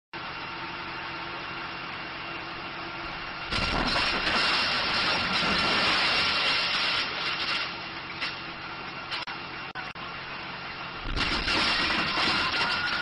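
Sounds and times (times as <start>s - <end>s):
engine-like drone: 0.2s - 13.0s
loud explosion: 3.5s - 6.8s, 11.0s - 13.0s.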